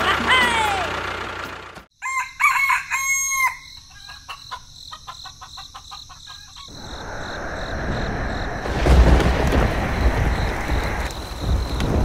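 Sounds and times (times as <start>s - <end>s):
rain hissing: 6.7s - 12.0s.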